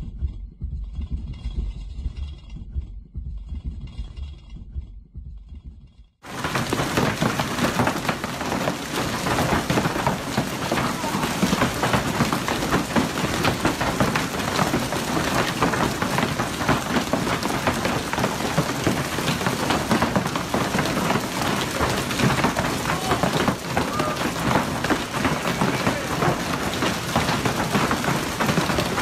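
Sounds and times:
hailstones pelting the ground: 0:06.2 - 0:29.0.

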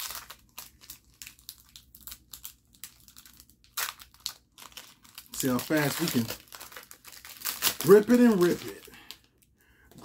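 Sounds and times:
foil wrapper crinkling and tearing: 0:00.0 - 0:10.0.

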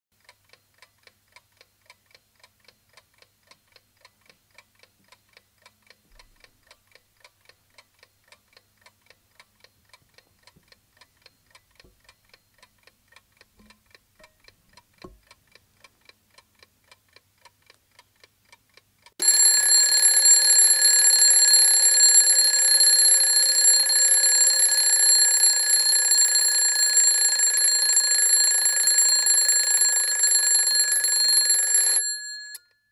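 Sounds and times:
alarm clock ticking: 0:06.6 - 0:17.5, 0:18.2 - 0:32.8
alarm bell ringing: 0:19.2 - 0:32.7.

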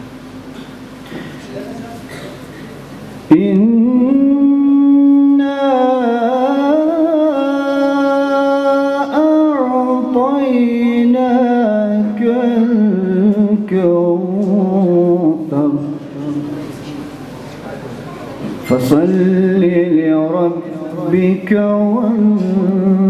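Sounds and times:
man chanting melodically: 0:03.3 - 0:17.0, 0:18.6 - 0:23.0.

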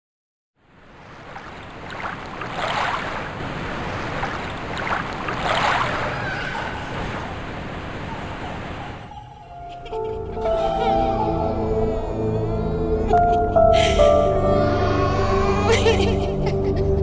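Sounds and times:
wind: 0:00.6 - 0:10.8
water washing: 0:00.8 - 0:09.1.

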